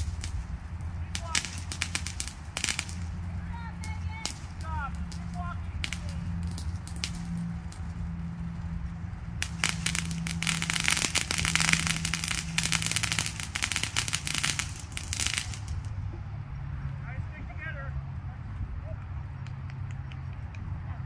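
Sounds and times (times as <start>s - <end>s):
firecrackers popping: 0.0s - 16.0s
low hum: 0.0s - 21.0s.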